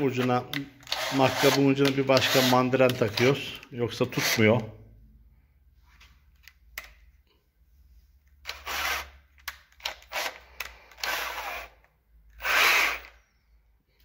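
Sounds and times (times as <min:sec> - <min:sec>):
cordless drill bursts: 0:00.8 - 0:02.7, 0:08.5 - 0:09.1, 0:10.0 - 0:11.8, 0:12.4 - 0:13.2.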